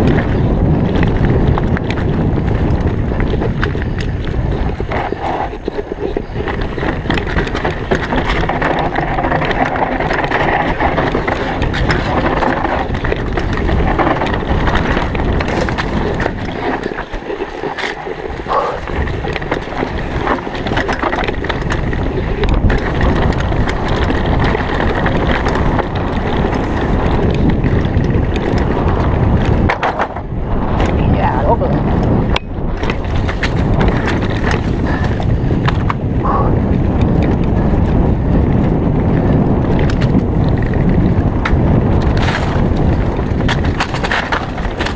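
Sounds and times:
bike frame rattling and clattering: 0.0s - 44.9s
tyres rolling over dirt and leaves: 0.0s - 44.9s
wind rushing: 21.7s - 44.0s.

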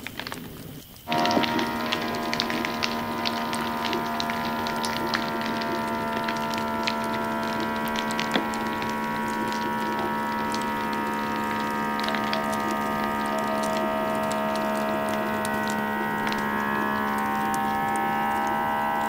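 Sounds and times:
faint ticks: 0.0s - 18.8s
vacuum sealer pump humming: 1.1s - 19.0s.

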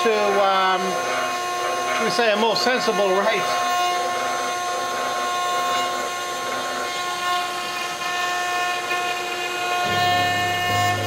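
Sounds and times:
cnc router carving wood: 0.0s - 11.0s.

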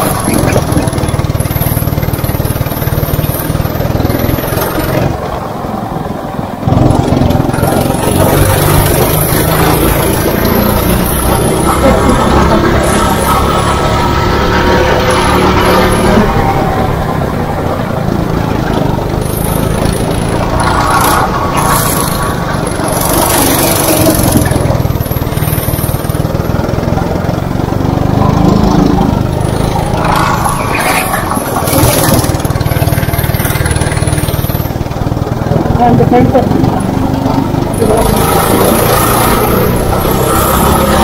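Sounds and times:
go-kart engine running hard: 0.0s - 41.0s
rushing noise bursts: 3.5s - 26.6s, 27.6s - 35.8s.

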